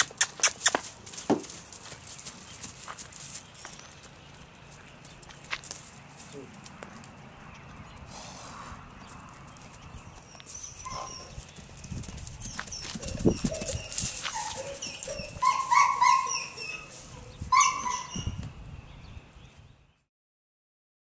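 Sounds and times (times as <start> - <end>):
high yelping animal calls: 10.3 - 11.5, 12.5 - 18.4.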